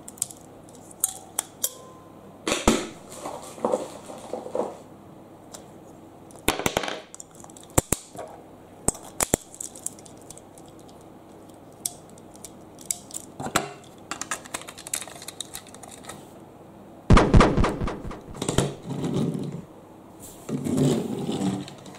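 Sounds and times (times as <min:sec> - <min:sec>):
plastic toy pieces clicking: 0:08.9 - 0:13.3, 0:14.1 - 0:16.2
plastic toys rattling clatter: 0:09.0 - 0:11.6, 0:14.1 - 0:16.2.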